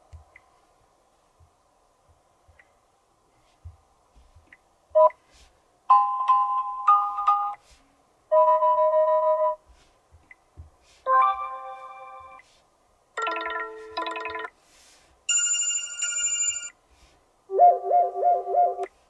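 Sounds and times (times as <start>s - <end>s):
phone ringtone melodies: 5.9s - 7.6s, 8.3s - 9.6s, 11.1s - 12.4s, 13.2s - 14.5s, 15.3s - 16.8s.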